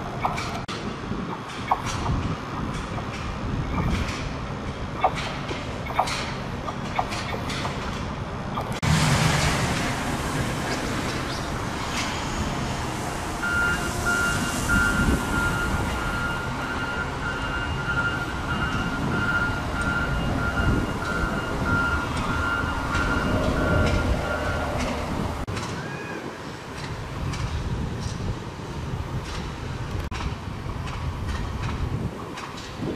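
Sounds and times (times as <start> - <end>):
machinery running: 7.8 - 25.4
electronic warning alarm beeping: 13.4 - 24.8.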